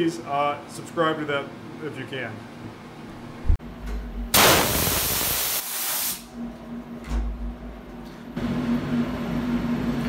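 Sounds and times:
loud hiss: 4.4s - 6.3s.

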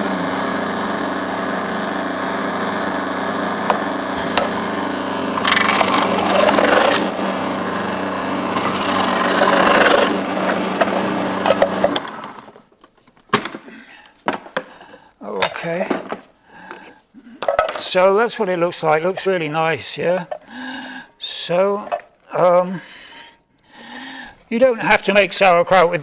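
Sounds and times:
cabbage chopping in processor: 0.0s - 12.6s
food processor motor running: 0.0s - 12.6s.

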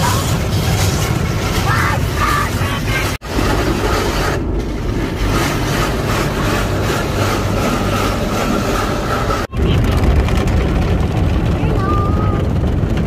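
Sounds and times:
car wash brushes scrubbing: 0.0s - 9.5s
steady whine: 0.0s - 13.0s.

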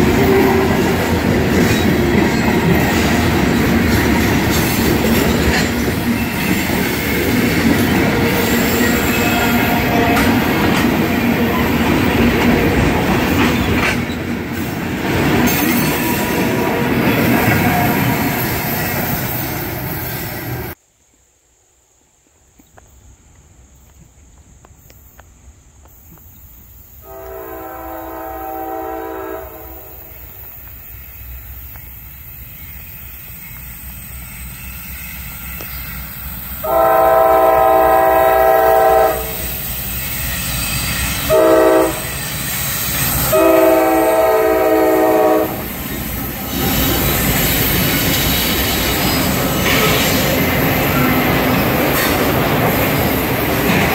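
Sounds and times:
train rumble: 0.0s - 20.8s, 23.0s - 53.9s
locomotive horn blasts: 27.0s - 30.1s, 36.6s - 39.4s, 41.2s - 42.2s, 43.2s - 45.7s.

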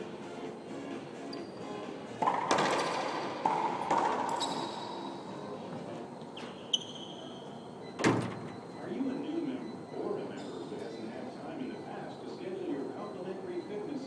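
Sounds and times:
shoes squeaking on floor: 1.2s - 3.1s, 3.8s - 7.7s
racquetball smacks: 2.2s - 4.6s.

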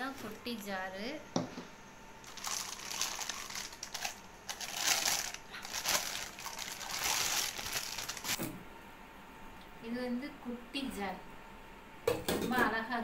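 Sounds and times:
plastic bag crinkling: 2.2s - 8.5s.

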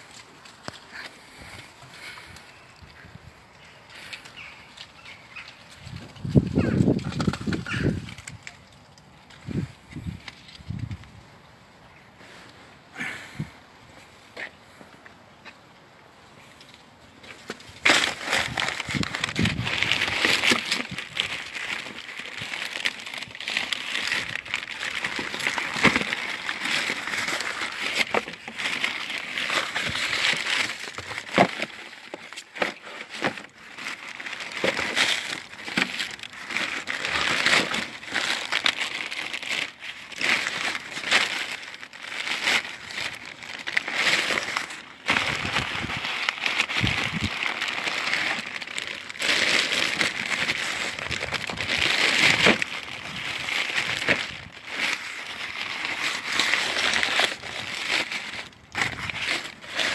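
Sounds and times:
cardboard and plastic wrap rustling: 0.0s - 11.2s, 16.4s - 59.9s.

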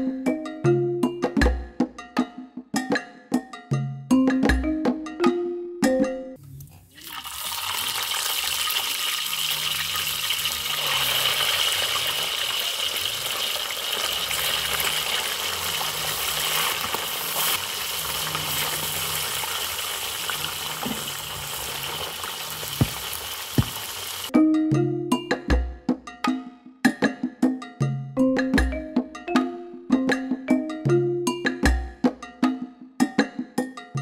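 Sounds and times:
fish sizzling in hot oil: 6.9s - 24.3s.

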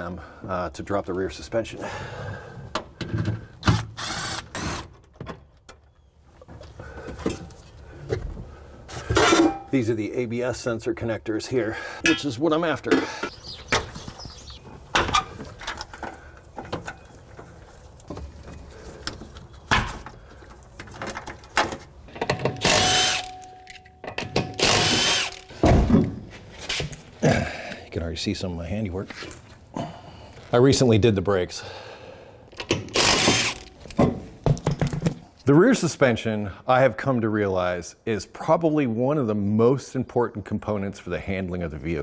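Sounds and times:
impact wrench spinning lug nuts: 22.1s - 23.5s, 24.2s - 25.6s, 32.7s - 33.8s
cordless power tool running: 22.6s - 23.4s, 24.6s - 25.4s, 33.0s - 33.7s.

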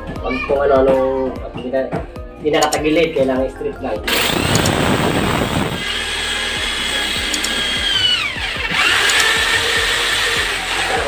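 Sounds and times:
electric drill whining: 4.1s - 11.0s.

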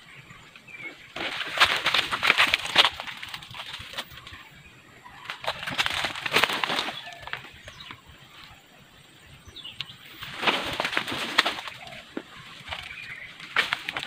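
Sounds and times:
faint bird calls: 0.0s - 14.0s
dry leaves rustling and crackling: 1.1s - 4.5s, 5.1s - 8.6s, 10.1s - 14.0s.

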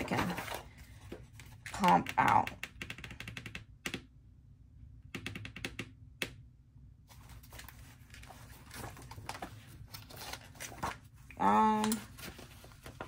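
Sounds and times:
paper rustling and sliding: 7.1s - 11.2s, 11.8s - 13.0s.

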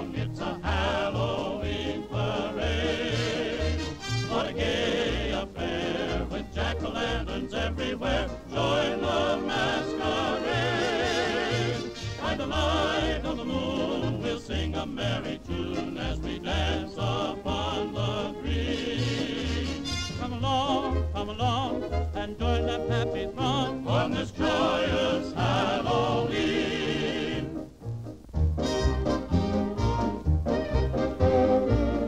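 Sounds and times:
character singing with vibrato: 0.0s - 27.6s
band accompaniment with bouncing bass: 27.8s - 32.0s.

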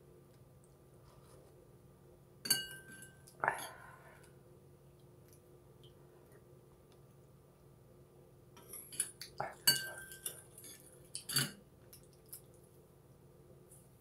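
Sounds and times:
spoon clinking against bowl: 2.5s - 3.2s, 8.9s - 10.4s.

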